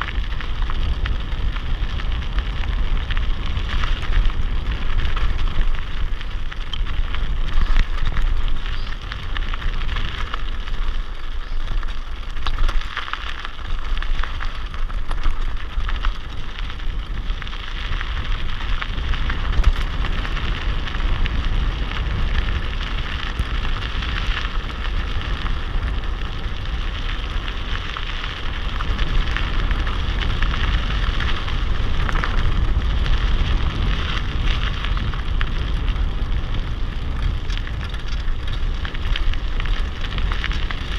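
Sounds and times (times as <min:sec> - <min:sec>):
bike rattling: 0:00.0 - 0:40.9
bike tyres crunching on gravel: 0:00.0 - 0:40.9
wind rumbling on microphone: 0:00.0 - 0:40.9.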